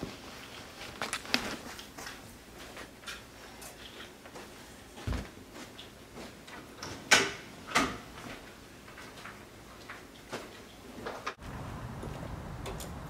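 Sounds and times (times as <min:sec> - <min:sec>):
footsteps and shuffling: 0:00.0 - 0:07.1
outdoor background noise: 0:00.0 - 0:13.0.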